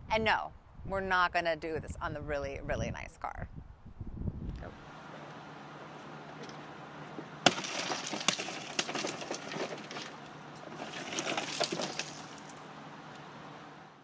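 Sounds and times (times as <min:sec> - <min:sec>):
car window smashing: 0:07.4 - 0:12.5
glass fragments crunching and tinkling: 0:07.5 - 0:12.6.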